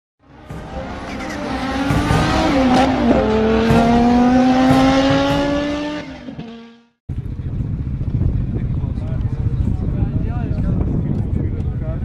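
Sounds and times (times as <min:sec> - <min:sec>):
race car engine revving: 0:00.2 - 0:06.9.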